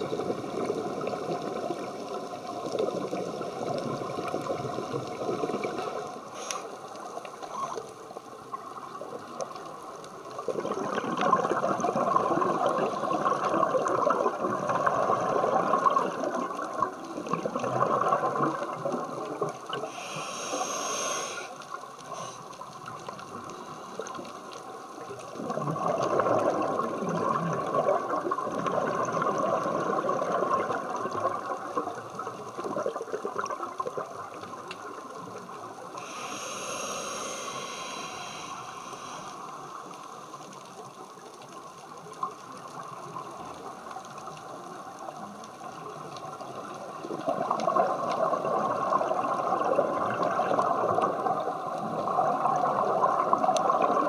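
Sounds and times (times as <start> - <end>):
exhaled bubbles rushing underwater: 0.0 - 6.3, 8.2 - 20.0, 24.9 - 36.2, 41.8 - 54.0
inhaled breath hiss: 5.7 - 7.9, 19.7 - 22.6, 35.8 - 40.4.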